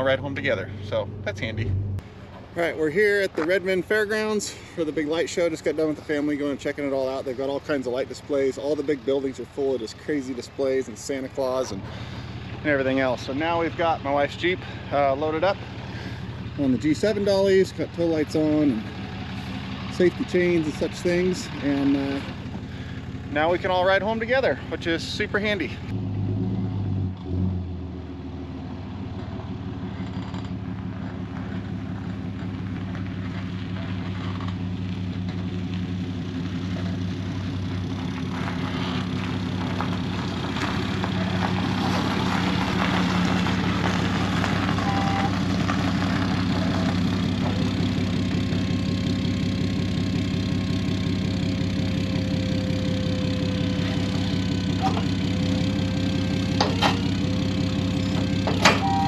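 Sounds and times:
truck engine running: 0.0 - 59.0.

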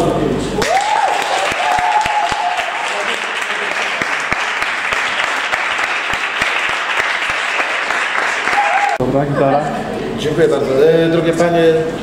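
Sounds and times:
audience applauding: 0.6 - 9.0.

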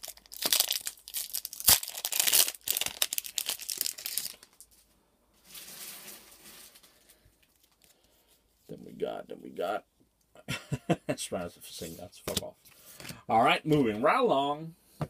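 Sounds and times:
foil wrapper tearing and crinkling: 0.0 - 4.6.

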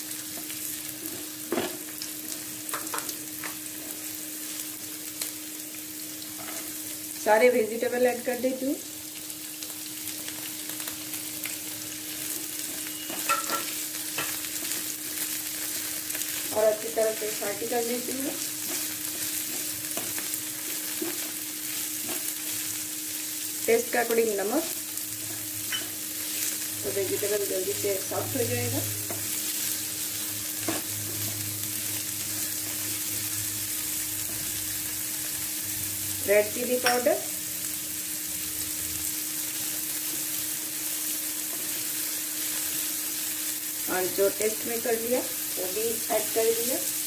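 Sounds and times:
vegetables sizzling in hot oil: 0.0 - 47.0
spatula stirring in pan: 18.4 - 22.7.

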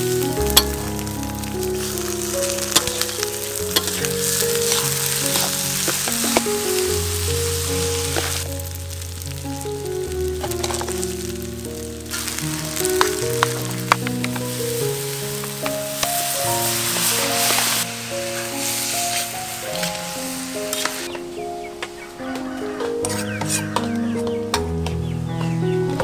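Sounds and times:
rice sizzling in oil: 0.0 - 21.2
soft background music: 0.0 - 26.0
metal spatula scraping wok: 2.6 - 6.6, 23.0 - 23.8.

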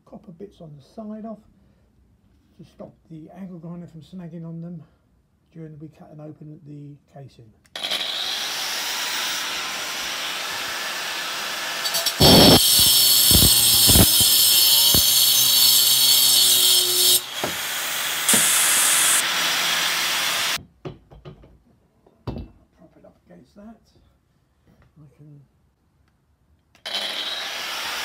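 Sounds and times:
angle grinder running: 7.8 - 20.6, 26.9 - 28.0
grinder disc cutting metal pipe: 7.8 - 20.6, 26.8 - 28.0.

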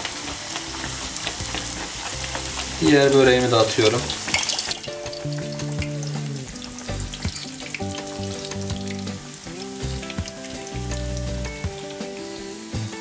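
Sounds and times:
oil sizzling and crackling: 0.0 - 13.0
soft background music: 0.0 - 13.0.

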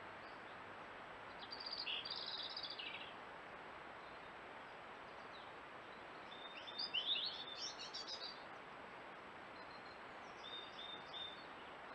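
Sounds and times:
songbird chirping: 1.3 - 3.2, 4.0 - 8.4, 9.5 - 11.9.

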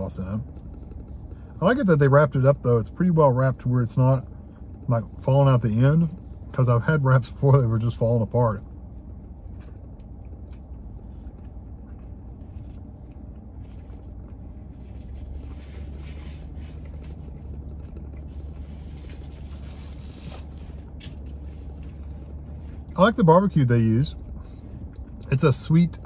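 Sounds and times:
car engine idling: 0.0 - 26.0
man chewing food: 8.6 - 23.0, 24.2 - 25.3.

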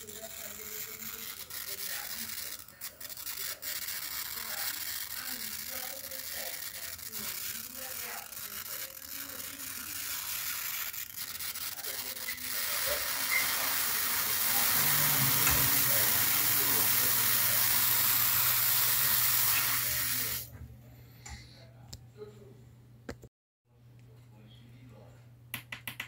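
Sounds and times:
tesla coil hissing sizzle: 9.4 - 20.5.

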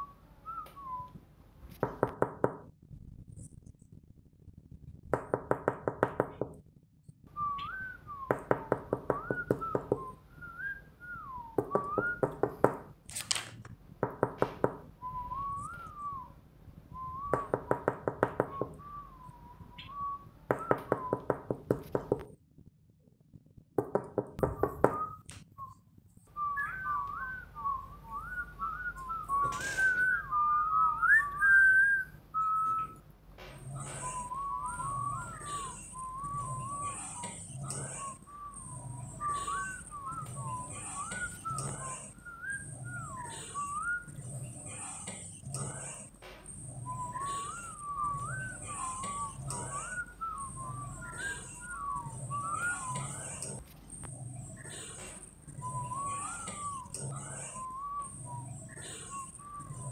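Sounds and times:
person whistling a tune: 0.0 - 1.2, 7.3 - 12.6, 15.0 - 21.7, 24.5 - 33.0, 33.6 - 46.0, 46.8 - 53.6, 54.7 - 59.9.

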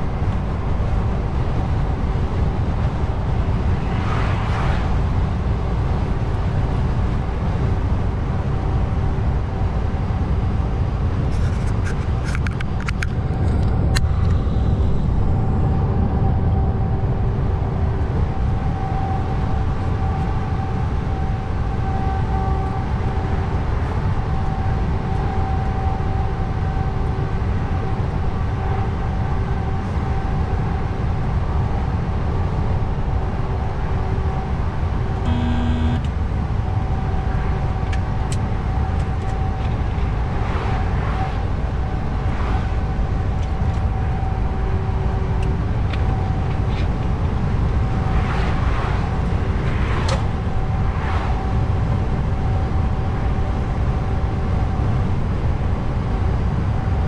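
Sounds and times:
constant whine: 0.0 - 57.0
truck engine and road rumble: 0.0 - 57.0
short horn toot: 35.3 - 36.1.

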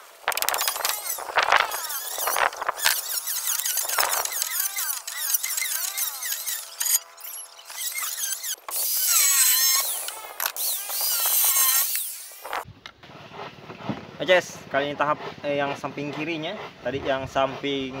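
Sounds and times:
bit cutting into wood: 0.0 - 12.6
power tool motor squealing: 0.3 - 12.6.

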